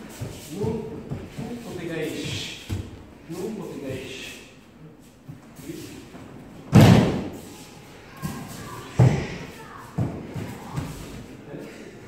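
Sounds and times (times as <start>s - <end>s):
bodies thudding on mats: 6.6s - 7.4s.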